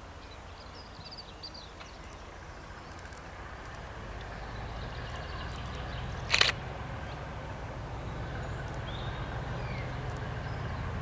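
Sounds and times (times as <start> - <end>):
diesel locomotive engine rumble: 0.0 - 11.0.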